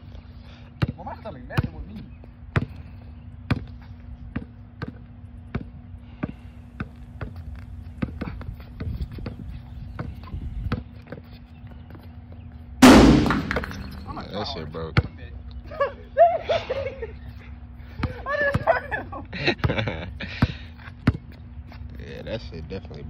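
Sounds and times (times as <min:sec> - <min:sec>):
basketball dribbling on concrete: 0:00.8 - 0:01.9, 0:04.3 - 0:11.2, 0:21.0 - 0:21.3
sudden loud burst of noise: 0:12.8 - 0:14.1.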